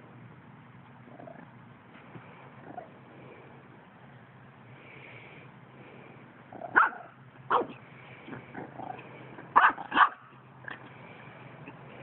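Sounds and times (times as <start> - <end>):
puppy barking: 6.6 - 7.8, 9.5 - 10.8.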